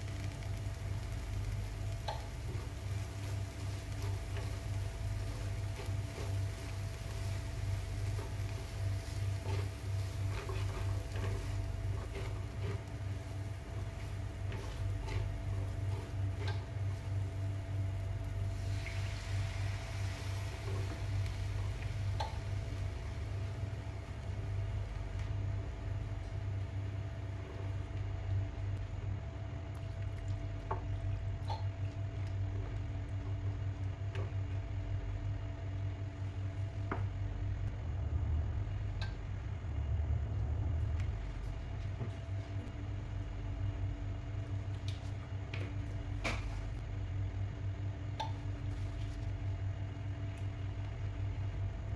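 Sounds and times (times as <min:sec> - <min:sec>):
low pulsing hum: 0:00.0 - 0:51.9
water poured into hot pan: 0:18.5 - 0:21.2.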